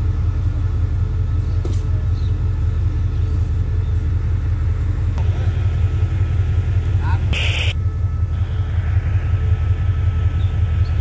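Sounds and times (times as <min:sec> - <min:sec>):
train diesel engine idling: 0:00.0 - 0:11.0.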